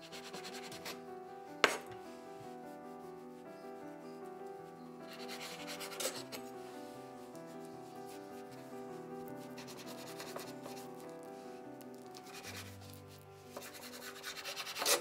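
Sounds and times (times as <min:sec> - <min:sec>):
soft background music: 0:00.0 - 0:15.0
knife scraping on cutting board: 0:05.2 - 0:06.4, 0:13.6 - 0:15.0.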